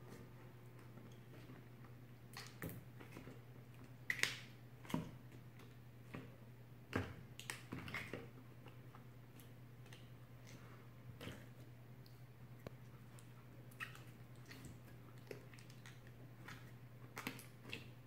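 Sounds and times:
slime squelching and popping: 4.0 - 6.2, 9.3 - 18.0.

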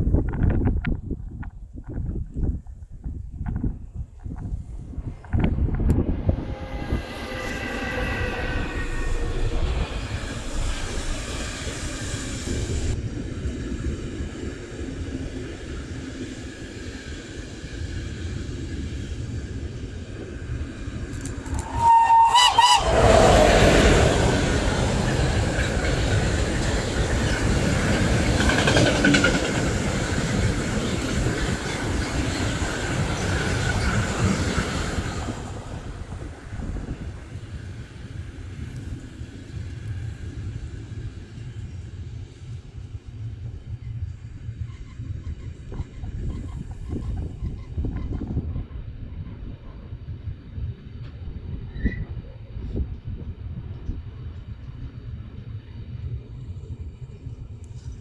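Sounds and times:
train whine: 3.6 - 58.0
train wheels clattering on rails: 17.8 - 41.2
train horn blast: 21.5 - 24.1.

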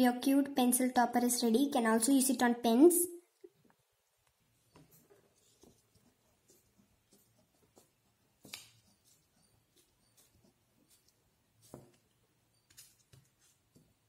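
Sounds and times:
pencil scratching on paper: 4.6 - 14.0.

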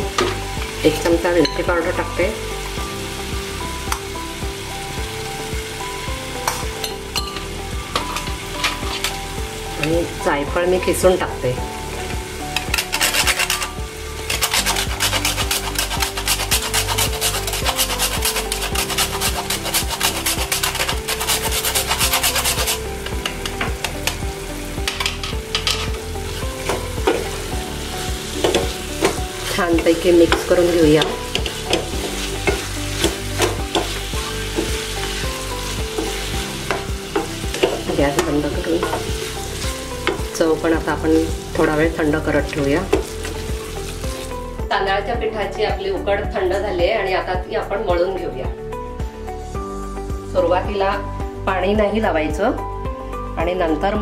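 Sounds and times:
filling sizzling in a pan: 0.0 - 45.2, 49.0 - 53.3
spatula scraping and tapping pan: 12.5 - 27.4, 28.2 - 40.4
nutmeg rasped on metal grater: 12.7 - 22.8.

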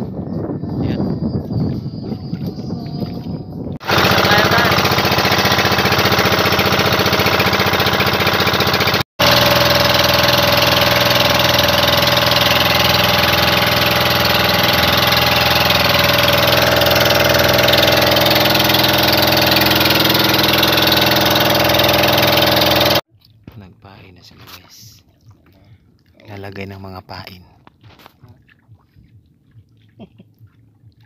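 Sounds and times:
boat engine running: 0.8 - 23.1.

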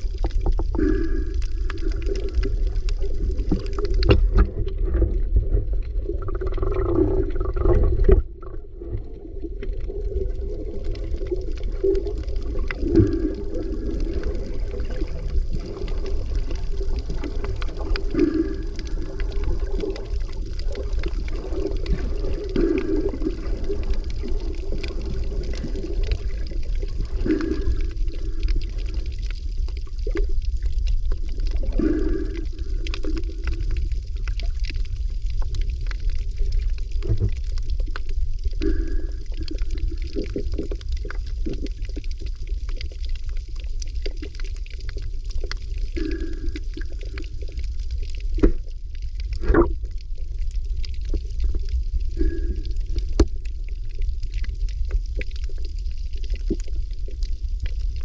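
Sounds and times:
swell of water: 0.0 - 58.0
underwater rumble of water: 0.0 - 58.0.

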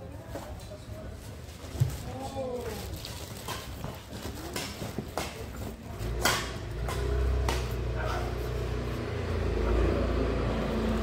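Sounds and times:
rackets smacking shuttlecock: 6.1 - 8.2.

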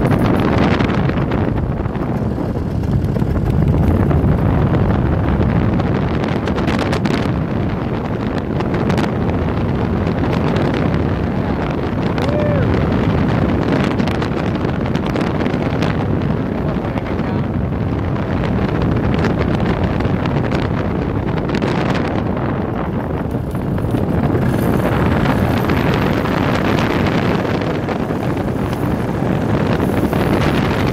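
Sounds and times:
engine droning: 0.0 - 6.6, 20.8 - 30.9
wind buffeting microphone: 0.0 - 30.9.

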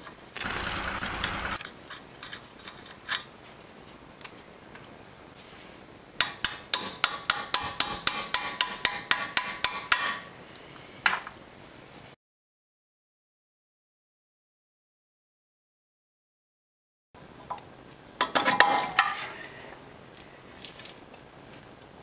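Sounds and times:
ratchet wrench clicking: 0.4 - 1.6.

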